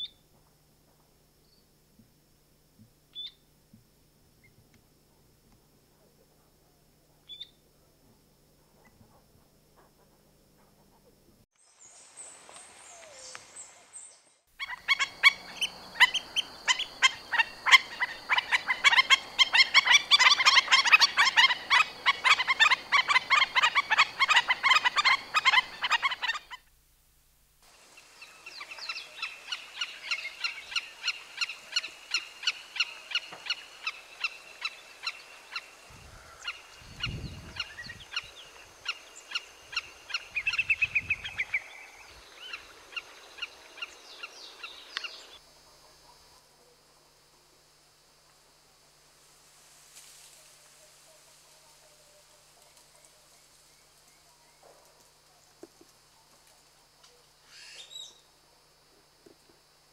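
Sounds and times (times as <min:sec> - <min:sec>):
shorebirds yapping calls: 0:14.6 - 0:26.6.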